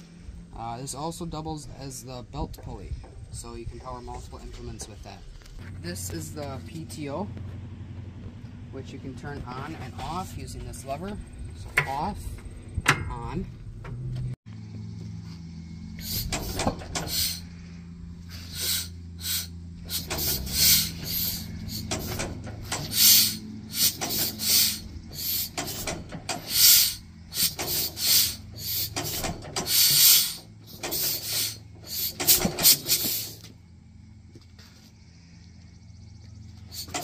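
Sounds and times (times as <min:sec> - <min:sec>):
engine hissing puffs: 0:14.0 - 0:37.0.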